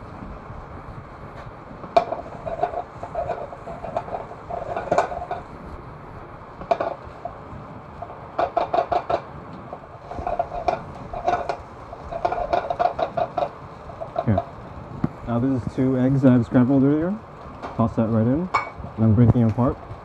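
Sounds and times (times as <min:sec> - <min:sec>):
spatula scraping a skillet: 0:02.0 - 0:05.6, 0:09.8 - 0:14.4.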